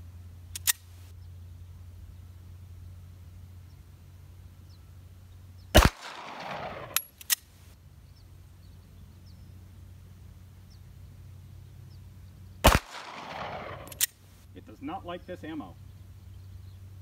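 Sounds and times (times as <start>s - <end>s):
sharp clicks: 0.5s - 0.9s, 5.8s - 7.5s, 12.7s - 14.2s
pistol shot echoing: 5.8s - 7.0s, 12.6s - 14.1s.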